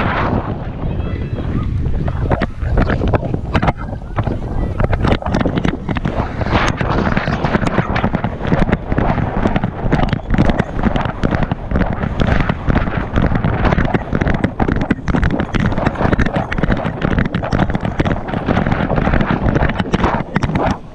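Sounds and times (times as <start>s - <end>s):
wind buffeting camera: 0.0s - 20.9s.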